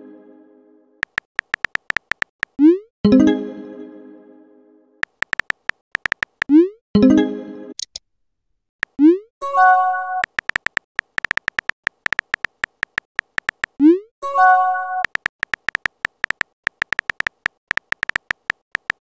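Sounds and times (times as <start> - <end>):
keyboard key clicks: 1.0 - 2.6, 5.0 - 6.5, 10.2 - 13.8, 15.0 - 19.0.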